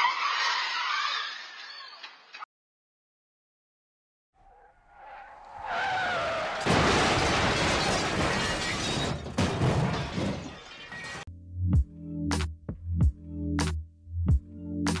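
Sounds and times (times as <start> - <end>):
car crash impact: 5.3 - 11.2
debris scattering: 6.3 - 11.2
glass breaking: 6.6 - 11.3.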